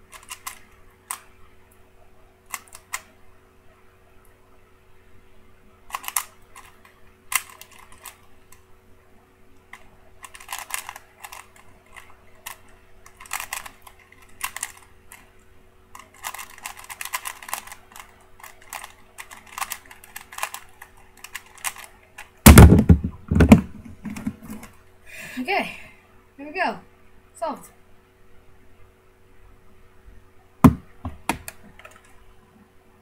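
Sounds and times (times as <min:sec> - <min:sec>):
puzzle cube clicking: 0:00.1 - 0:01.3, 0:05.9 - 0:08.6, 0:09.7 - 0:15.2, 0:16.0 - 0:23.5
cube put down with thump: 0:22.5 - 0:24.7, 0:30.6 - 0:31.6.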